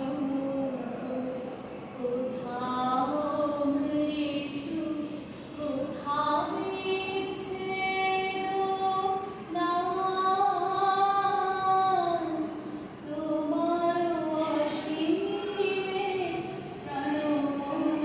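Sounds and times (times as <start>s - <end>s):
woman singing: 2.0s - 18.0s
singer breathing: 12.6s - 13.0s.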